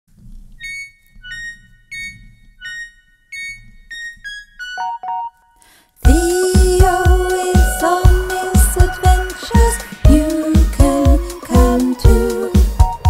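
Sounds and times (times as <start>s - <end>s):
bell-like electric piano notes: 0.6s - 5.5s.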